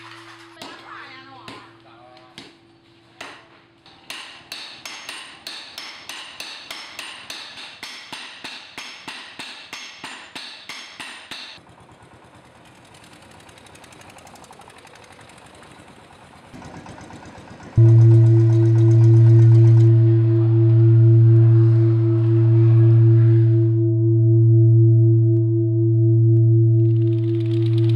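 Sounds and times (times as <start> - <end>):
hammer clanging on anvil: 3.2 - 11.6.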